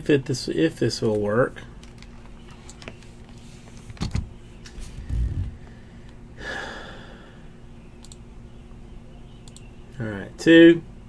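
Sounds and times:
dull low thump: 0:05.0 - 0:05.7
breathy exhale: 0:05.6 - 0:07.5
keyboard clicks: 0:08.0 - 0:08.2, 0:09.4 - 0:09.8.

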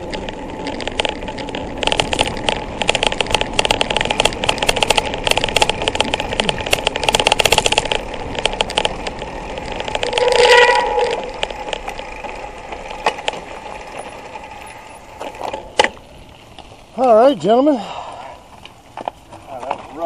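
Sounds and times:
bike freewheel hub ticking: 0:00.0 - 0:17.3
tyres on gravel: 0:00.0 - 0:20.0
short squeal: 0:10.0 - 0:11.3.

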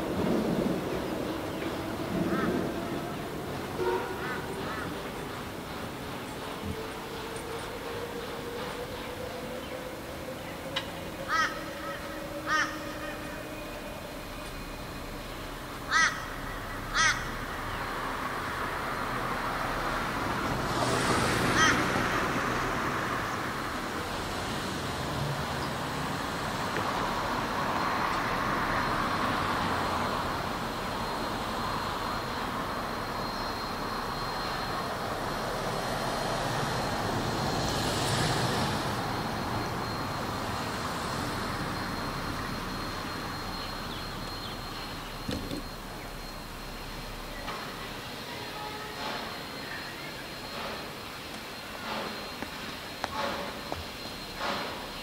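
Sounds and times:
railway carriage wheels rumbling on track: 0:00.0 - 0:55.0
crow cawing: 0:02.2 - 0:02.6, 0:04.2 - 0:05.0, 0:11.3 - 0:13.2, 0:15.9 - 0:17.5, 0:21.4 - 0:22.2.

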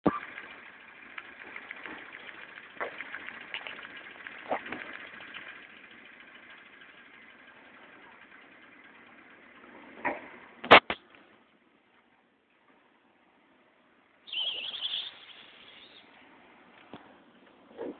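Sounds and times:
toy steam engine clatter: 0:00.1 - 0:07.2.

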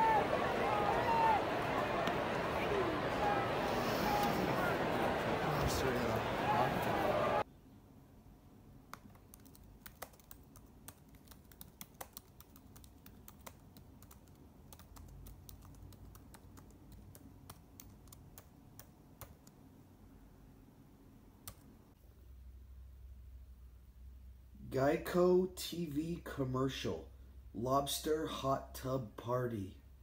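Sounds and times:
faint laptop keyboard typing: 0:08.9 - 0:19.8, 0:21.4 - 0:21.7.

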